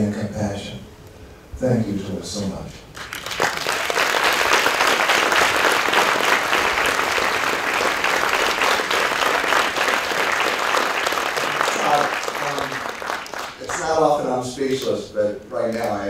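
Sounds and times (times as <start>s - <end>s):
audience applauding: 2.9s - 15.0s.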